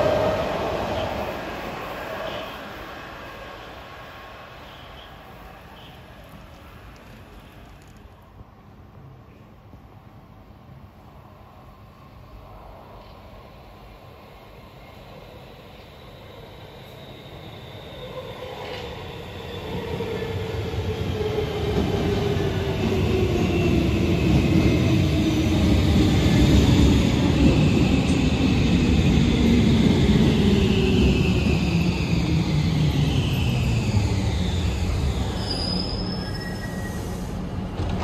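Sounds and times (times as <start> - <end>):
metro train rumble: 0.0 - 38.0
brake squeal: 35.2 - 37.4.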